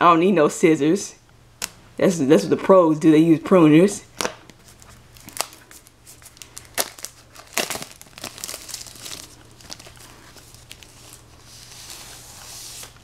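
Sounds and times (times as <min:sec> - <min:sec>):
plastic film crinkling: 0:04.1 - 0:13.0.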